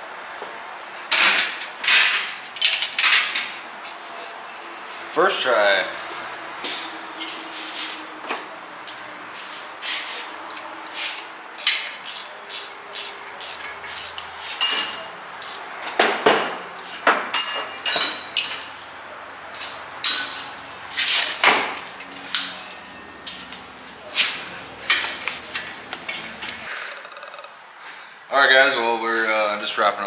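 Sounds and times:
metal tools clinking: 0:01.8 - 0:03.5, 0:11.6 - 0:18.9, 0:19.6 - 0:21.5.

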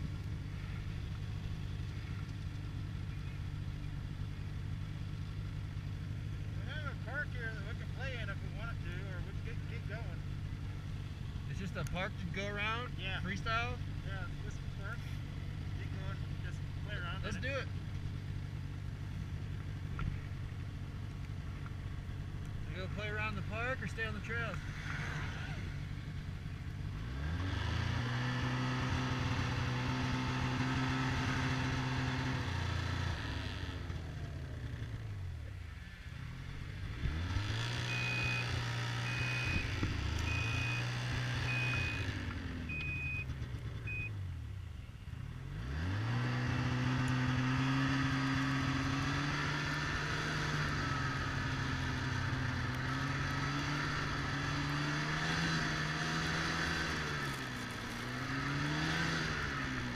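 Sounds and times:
snowmobile engine running: 0:04.1 - 0:35.1, 0:36.4 - 0:44.1, 0:45.8 - 0:59.9
short electronic beep: 0:37.8 - 0:43.3, 0:43.9 - 0:44.2.

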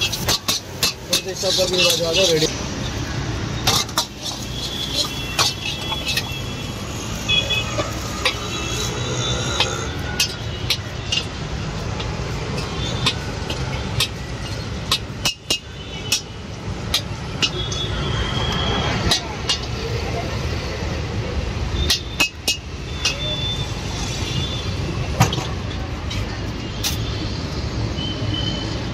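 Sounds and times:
ladle clanking against wok: 0:00.0 - 0:02.2, 0:03.6 - 0:06.4.

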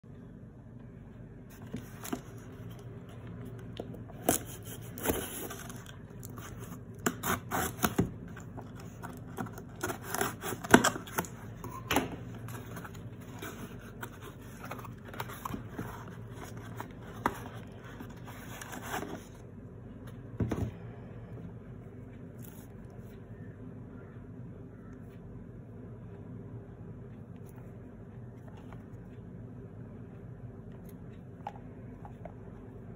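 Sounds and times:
cardboard box being torn open: 0:09.4 - 0:11.3.

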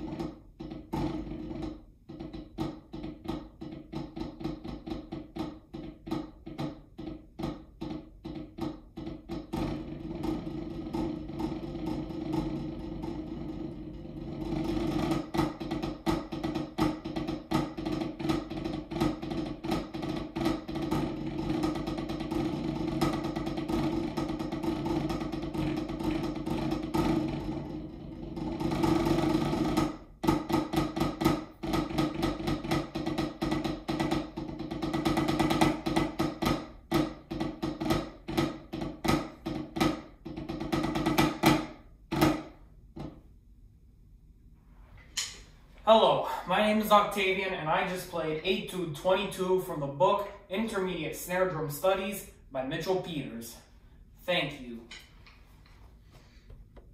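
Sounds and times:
snare drum played with sticks: 0:00.0 - 0:43.2.

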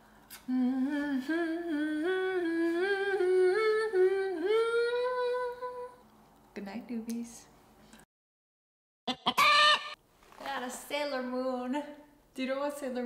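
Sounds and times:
woman humming: 0:00.4 - 0:05.9.

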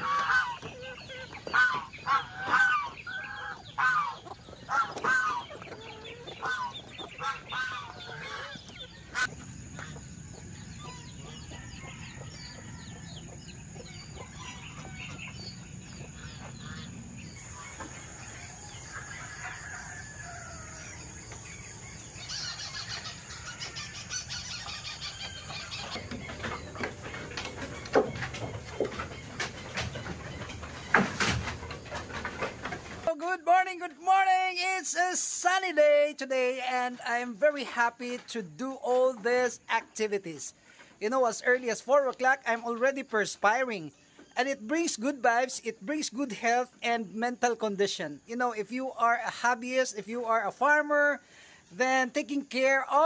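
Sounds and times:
geese honking: 0:00.0 - 0:10.0, 0:14.2 - 0:33.2
chickens clucking: 0:00.0 - 0:33.2, 0:36.6 - 0:46.8.

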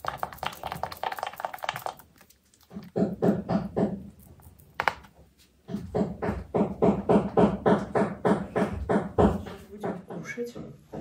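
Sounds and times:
rapid even knocking: 0:02.7 - 0:04.1, 0:05.7 - 0:11.0.

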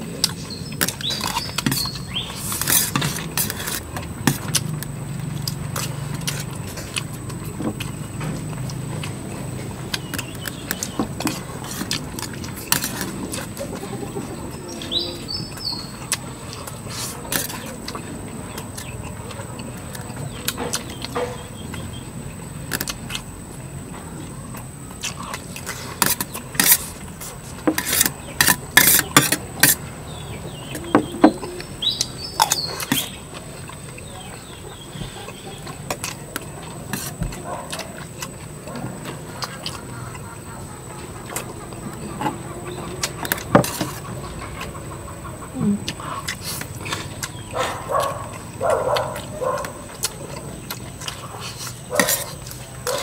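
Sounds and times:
bird chirping: 0:00.0 - 0:02.8, 0:08.6 - 0:11.3, 0:13.6 - 0:16.6, 0:20.1 - 0:22.4, 0:28.0 - 0:36.0, 0:46.8 - 0:53.0.

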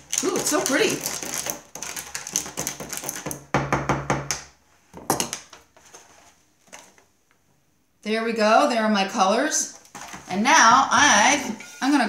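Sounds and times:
metal spoon stirring paint in paper cup: 0:00.0 - 0:03.4.

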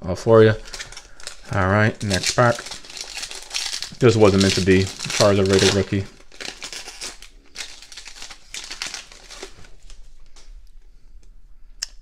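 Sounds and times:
foil pack crinkling and tearing: 0:00.5 - 0:10.1
cards being handled: 0:00.6 - 0:10.5.

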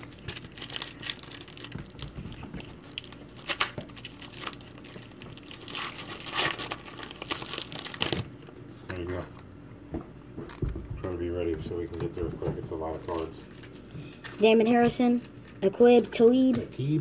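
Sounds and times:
foil wrapper tearing and crinkling: 0:00.0 - 0:08.4.

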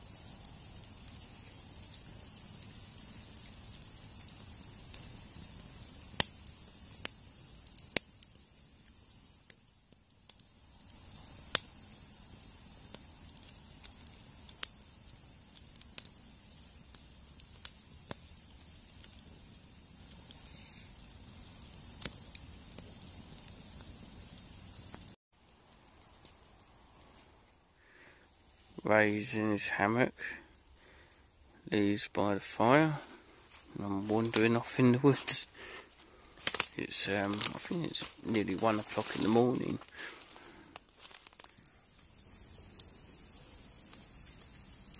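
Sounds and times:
thin high whistle: 0:00.0 - 0:17.6, 0:18.2 - 0:22.0
campfire crackling and popping: 0:00.0 - 0:28.9, 0:29.7 - 0:44.9.

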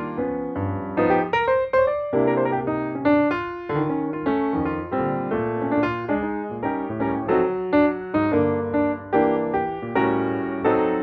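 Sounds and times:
piano music: 0:00.0 - 0:11.0.

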